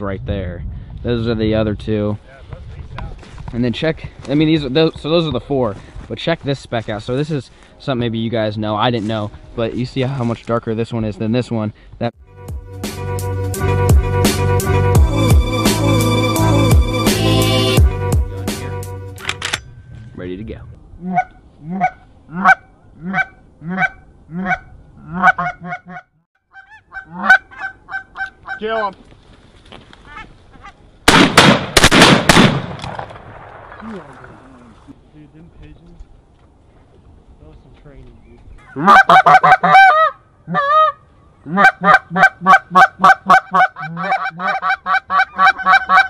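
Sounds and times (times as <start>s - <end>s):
goose call honks: 21.0s - 28.7s, 38.6s - 46.0s.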